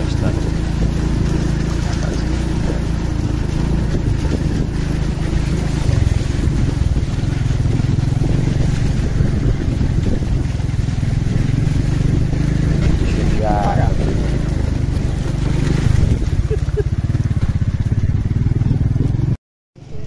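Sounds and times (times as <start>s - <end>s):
motorcycle engine running: 0.0s - 20.0s
splashing through muddy water: 0.0s - 20.0s.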